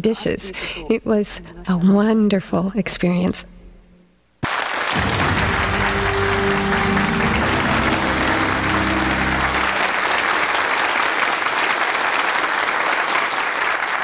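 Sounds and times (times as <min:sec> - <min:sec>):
studio audience applauding: 0:04.4 - 0:14.0
low music sting: 0:05.0 - 0:10.6.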